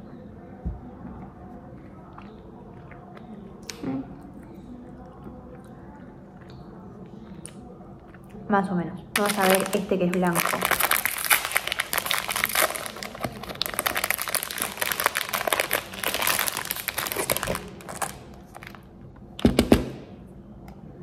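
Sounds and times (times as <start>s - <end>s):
foil wrapper crinkling: 9.2s - 18.8s.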